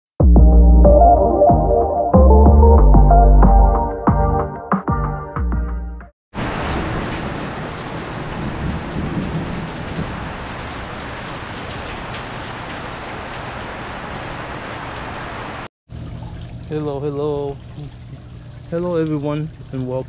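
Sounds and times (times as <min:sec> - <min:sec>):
heavy rain falling: 0:06.4 - 0:15.7
thunder rumble: 0:06.4 - 0:15.7.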